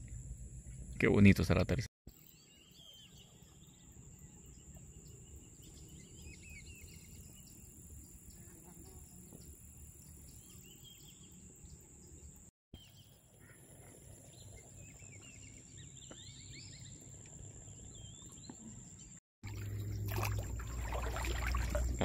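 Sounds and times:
small birds chirping: 2.1s - 22.0s
water splashing and sloshing: 19.4s - 22.0s.

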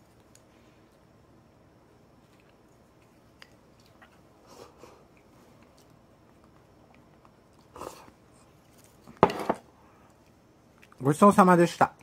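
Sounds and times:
faint chewing: 2.2s - 9.2s.

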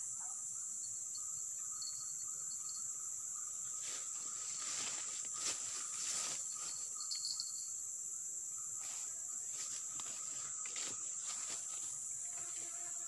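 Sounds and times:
high-pitched insect drone: 0.0s - 13.0s
rustling undergrowth: 3.6s - 7.6s, 8.8s - 13.0s.

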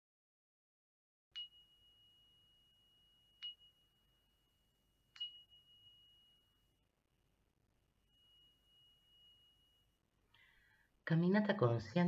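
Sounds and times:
faint high-pitched chime: 1.4s - 10.9s.

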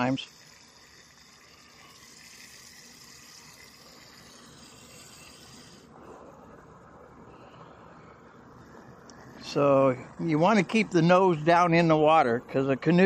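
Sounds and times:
water running from hose: 0.0s - 5.9s.

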